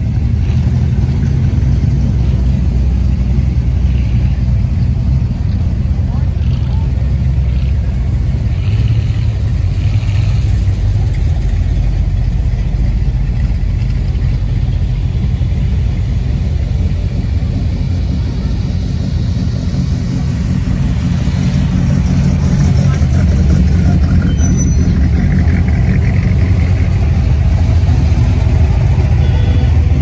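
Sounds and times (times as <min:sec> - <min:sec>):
car engines cruising slowly: 0:00.0 - 0:30.0.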